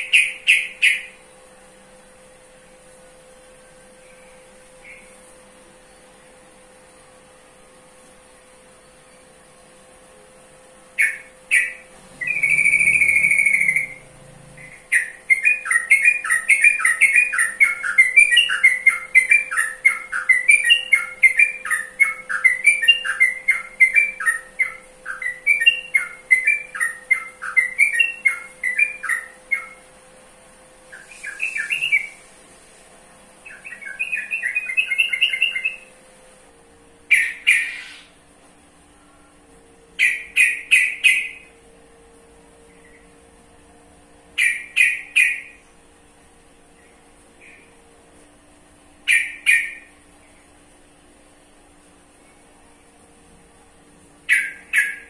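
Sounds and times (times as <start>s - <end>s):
bulbul singing: 0.0s - 1.3s, 3.9s - 5.3s, 11.0s - 29.9s, 30.9s - 32.3s, 33.4s - 36.0s, 37.1s - 38.2s, 40.0s - 41.6s, 44.3s - 45.7s, 49.0s - 50.4s, 54.2s - 55.0s.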